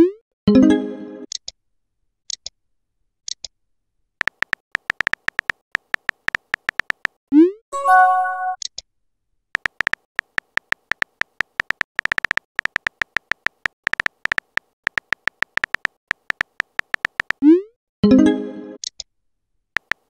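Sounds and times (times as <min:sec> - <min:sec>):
keyboard tapping clicks: 0:04.2 - 0:07.2, 0:09.6 - 0:17.4, 0:19.8 - 0:20.0.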